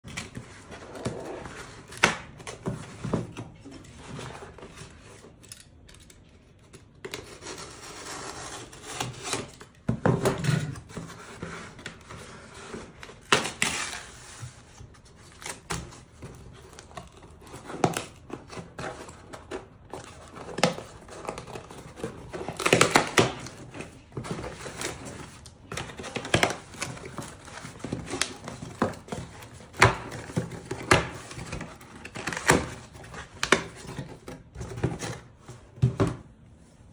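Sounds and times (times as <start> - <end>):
cardboard rustling: 7.0 - 36.9.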